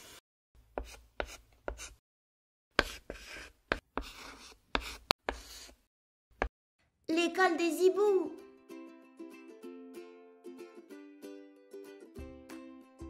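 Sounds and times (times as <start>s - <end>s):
chalk scratching on blackboard: 0.0s - 2.0s, 2.8s - 5.9s.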